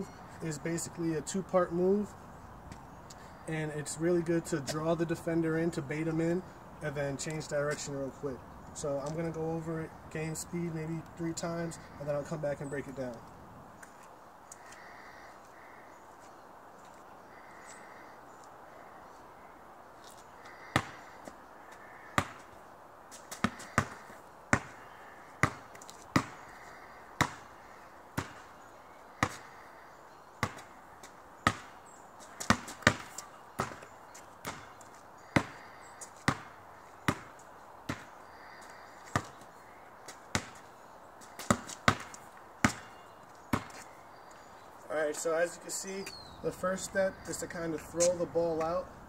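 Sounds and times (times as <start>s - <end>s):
basketball bouncing on asphalt: 20.5s - 28.6s, 29.2s - 29.6s, 30.4s - 43.9s.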